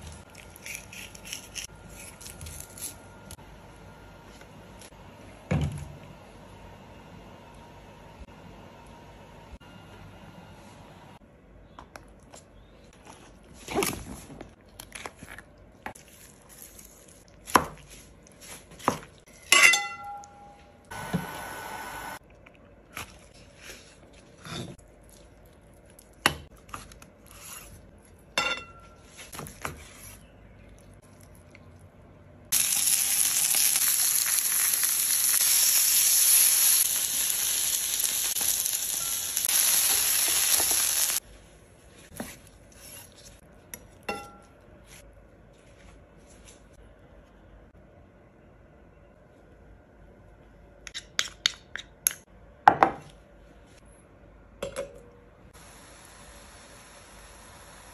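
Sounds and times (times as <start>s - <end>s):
food sizzling in hot pan: 32.5s - 41.2s, 55.6s - 57.9s.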